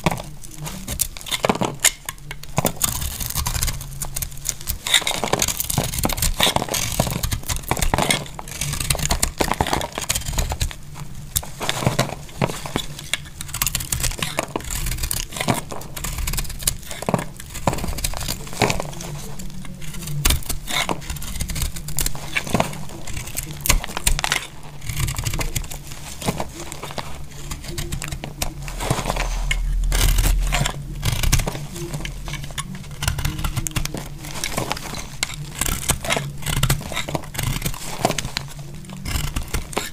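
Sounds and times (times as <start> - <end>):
knife shaving brittle soap: 0.0 - 39.9
soap plates crackling: 0.0 - 39.9
low rumble: 26.6 - 39.6.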